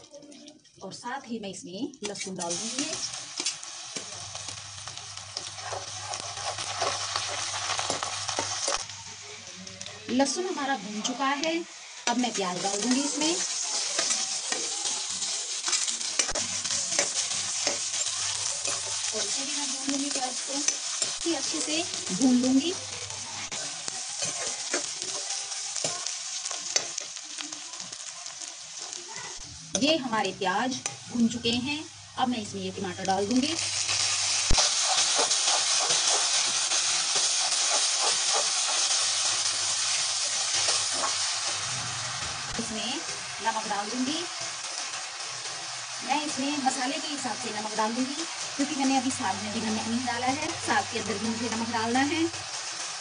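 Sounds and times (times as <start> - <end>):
garlic sizzling in oil: 0.0 - 53.0
spatula scraping a pan: 12.1 - 21.8, 23.4 - 27.2, 34.0 - 41.6.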